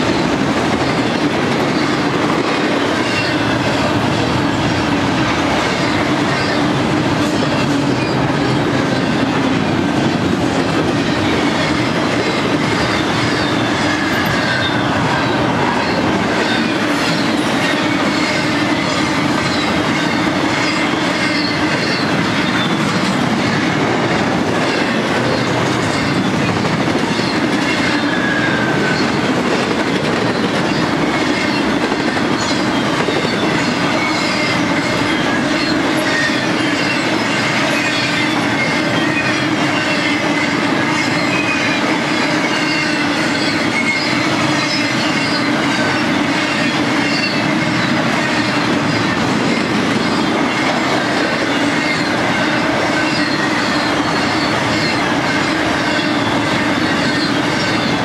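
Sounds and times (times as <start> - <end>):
freight train rolling past: 0.0 - 58.0
wheels clickety-clack: 0.0 - 58.0
high wheel squeals: 11.1 - 23.6, 24.7 - 29.5, 30.1 - 58.0.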